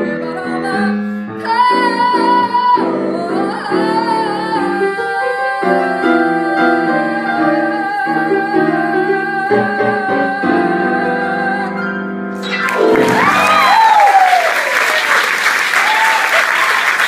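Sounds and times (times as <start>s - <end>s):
grand piano chords: 0.0s - 14.4s
applause with whoops and cheers: 12.6s - 17.0s.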